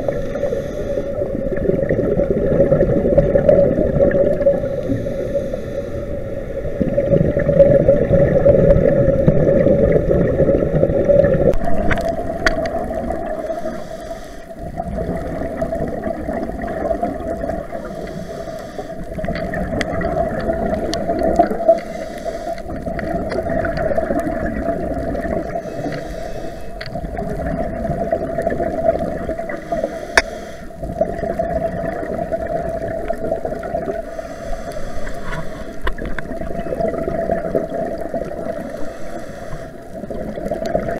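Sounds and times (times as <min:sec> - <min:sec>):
scuba regulator breathing hiss: 0:00.0 - 0:01.3, 0:04.6 - 0:06.6, 0:13.3 - 0:14.7, 0:17.7 - 0:19.0, 0:21.6 - 0:22.8, 0:25.5 - 0:26.8, 0:29.4 - 0:30.8, 0:34.0 - 0:35.8, 0:38.6 - 0:40.0
underwater rush and hum: 0:00.0 - 0:40.9
bubbles: 0:01.1 - 0:05.0, 0:06.6 - 0:13.8, 0:14.6 - 0:18.1, 0:18.8 - 0:29.9, 0:30.7 - 0:34.2, 0:35.1 - 0:39.0, 0:39.8 - 0:40.9.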